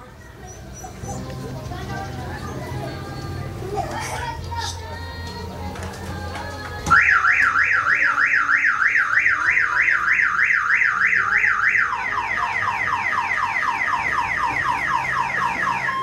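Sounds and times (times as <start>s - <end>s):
car alarm siren: 6.9s - 16.0s.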